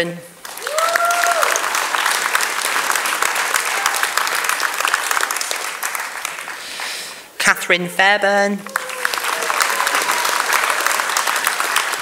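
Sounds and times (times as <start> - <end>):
audience applauding: 0.4 - 7.0, 8.6 - 12.0
person cheering: 0.6 - 1.6, 8.6 - 11.0.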